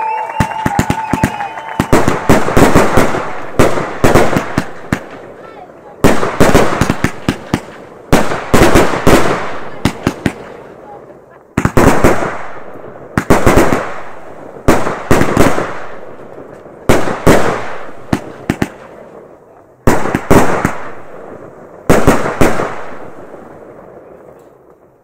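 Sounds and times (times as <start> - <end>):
fireworks bangs: 0.0 - 25.0.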